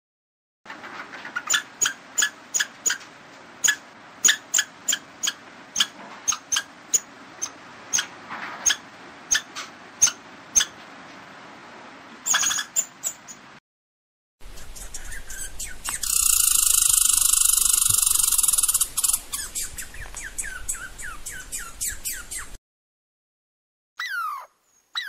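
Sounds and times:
hissy outdoor background: 0.7 - 13.6, 14.4 - 22.6, 24.1 - 25.0
squirrel chirping: 1.5 - 3.0, 3.6 - 8.1, 8.7 - 10.8, 12.3 - 13.4, 14.4 - 22.6, 24.0 - 25.0.

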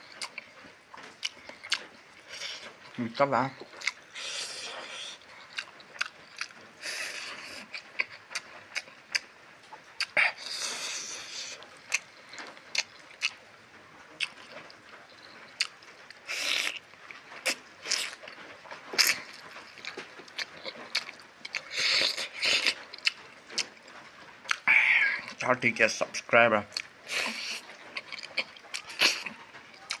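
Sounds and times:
wet chewing: 0.0 - 25.4, 26.0 - 30.0.

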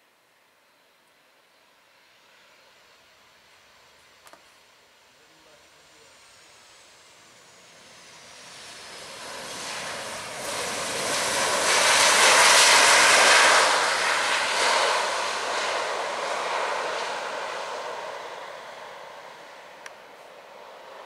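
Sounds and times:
jet engines roaring: 5.2 - 21.0.

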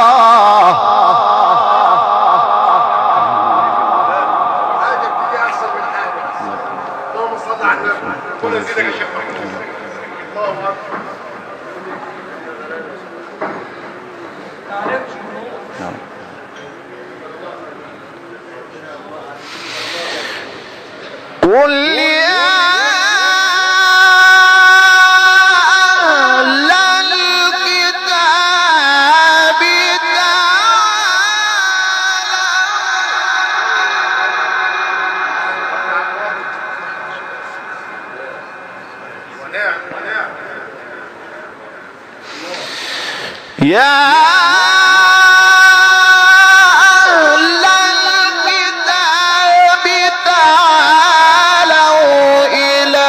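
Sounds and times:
man chanting melodically: 0.0 - 11.2, 21.4 - 40.5, 43.5 - 53.0.

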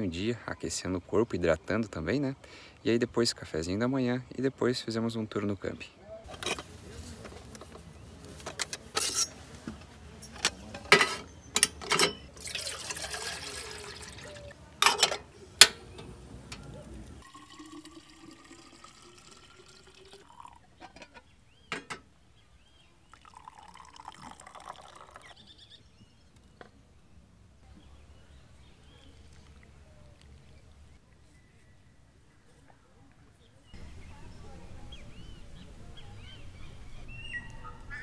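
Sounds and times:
gourd and kettle knocking: 10.8 - 22.1
water pouring: 12.2 - 14.6, 16.6 - 21.1, 23.1 - 25.4
pour rising in pitch: 12.4 - 14.5, 17.2 - 20.6.

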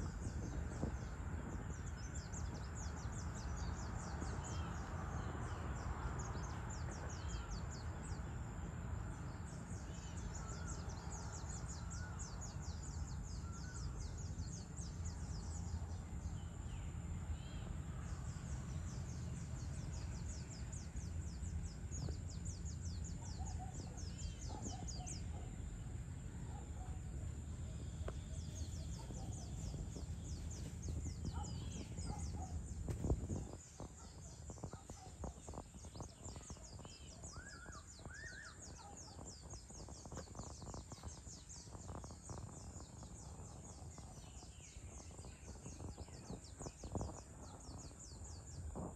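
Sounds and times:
birds calling: 0.0 - 48.9
low steady rumble: 0.0 - 48.9
insects chirring: 19.4 - 48.9.

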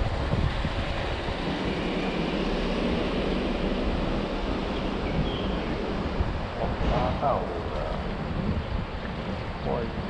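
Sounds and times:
low rumble: 0.0 - 10.0
wind on microphone: 0.0 - 10.0.

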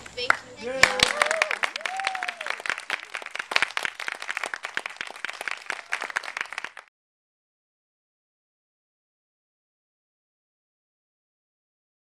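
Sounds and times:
audience applauding: 0.3 - 6.9.

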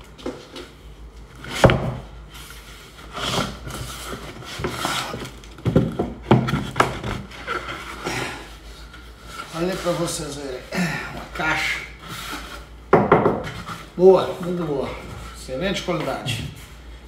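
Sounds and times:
wood scraping and rubbing: 2.9 - 10.7.

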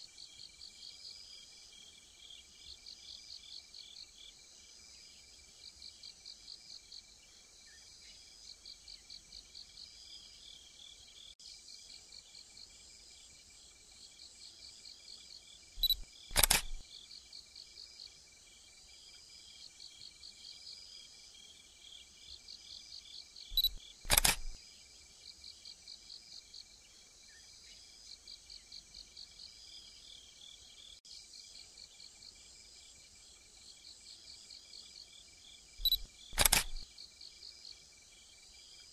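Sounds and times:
crickets chirping: 0.1 - 38.9
sharp double click: 15.8 - 16.8, 23.5 - 24.6, 35.8 - 36.8.

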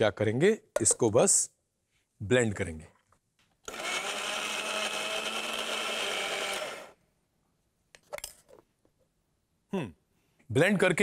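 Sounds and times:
mixer grinder running: 3.7 - 7.0.

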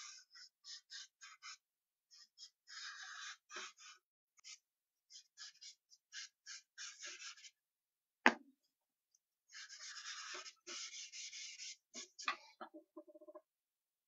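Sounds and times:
scratchy drawing strokes on paper: 0.0 - 7.6, 9.5 - 12.5
rubbing strokes on paper: 2.2 - 7.6, 9.5 - 12.3.

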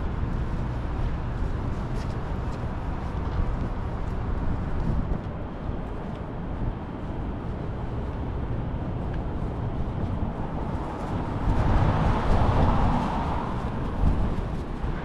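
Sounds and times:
low rumble of traffic: 0.0 - 15.0
vehicle passing close: 10.4 - 15.0.

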